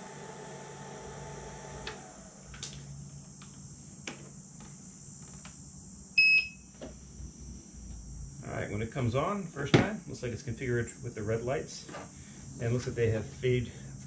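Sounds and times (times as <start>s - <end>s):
faint hum: 0.0s - 14.0s
high electronic beep: 6.2s - 6.6s.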